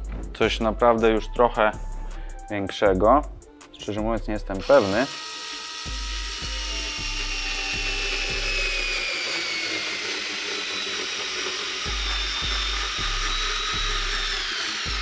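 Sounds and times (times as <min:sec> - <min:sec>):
bass beat of background music: 0:00.0 - 0:04.7, 0:05.9 - 0:09.1, 0:11.9 - 0:15.0
cordless screwdriver motor whine: 0:04.6 - 0:15.0.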